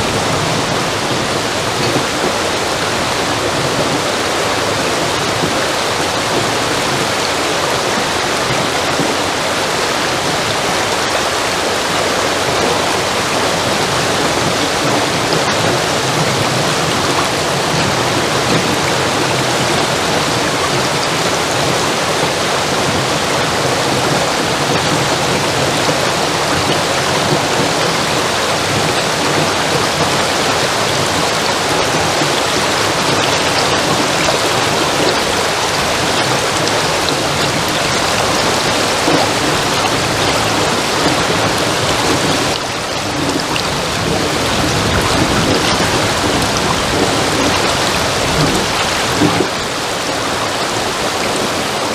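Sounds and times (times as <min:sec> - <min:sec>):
stream water rushing: 0:00.0 - 0:51.9.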